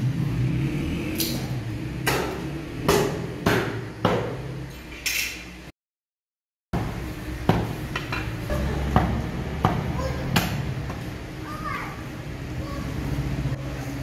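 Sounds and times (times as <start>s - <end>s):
cleaver chopping meat on wood: 2.0s - 4.5s.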